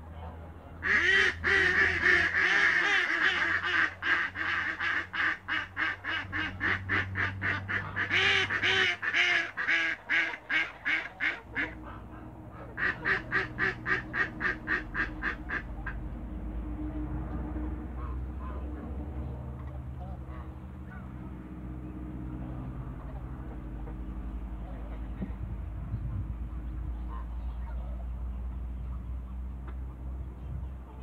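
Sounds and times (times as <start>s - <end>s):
geese honking: 0.8s - 16.1s.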